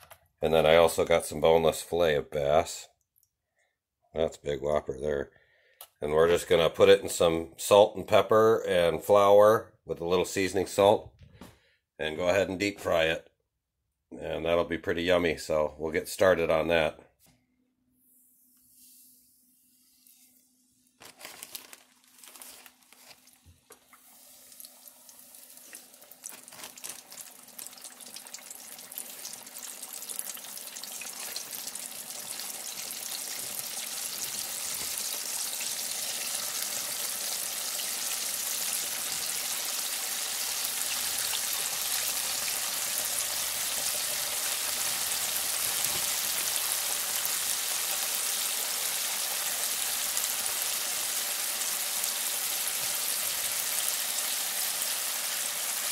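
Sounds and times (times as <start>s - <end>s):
oil sizzling in deep fryer: 22.5s - 55.9s.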